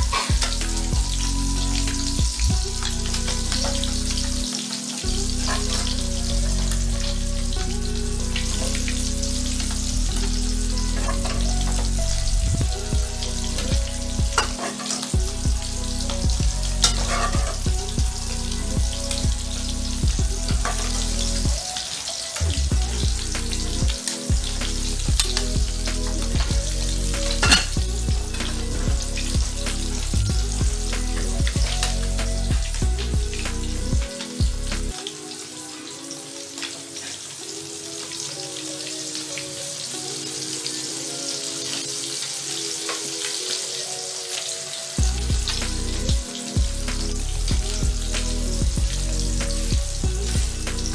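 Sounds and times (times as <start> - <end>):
fish sizzling in hot oil: 0.0 - 50.9
soft background music with beat: 0.0 - 50.9
metal lid clink: 27.4 - 27.7.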